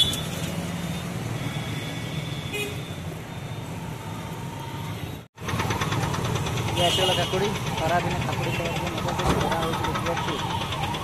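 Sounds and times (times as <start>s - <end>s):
car horn toot: 2.4s - 2.9s, 6.8s - 7.5s
vehicle engines running: 4.4s - 11.0s.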